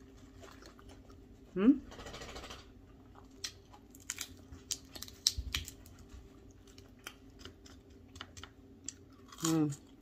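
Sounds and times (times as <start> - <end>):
chewing crispy food crunches: 3.0 - 10.0.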